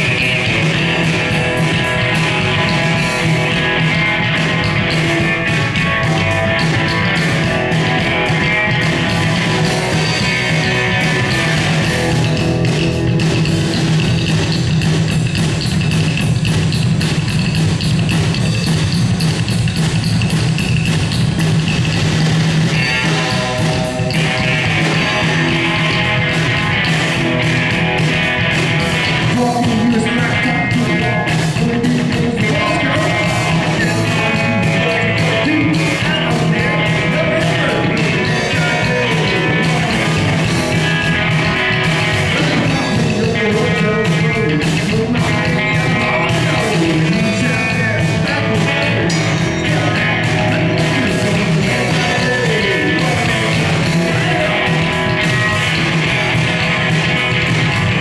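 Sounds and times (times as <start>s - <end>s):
drum kit: 0.0s - 58.0s
electric guitar: 0.0s - 58.0s
upright bass: 0.0s - 58.0s
man singing lead: 28.9s - 55.9s.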